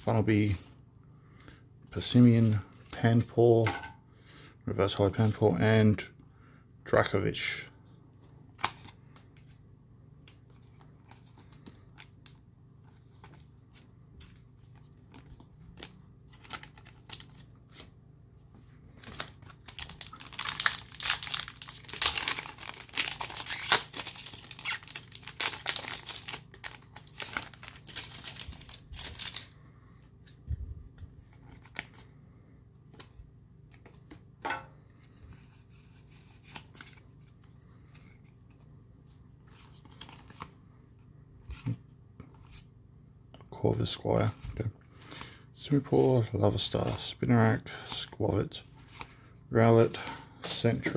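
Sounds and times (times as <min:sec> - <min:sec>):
foil wrapper tearing and crinkling: 0:19.1 - 0:29.5.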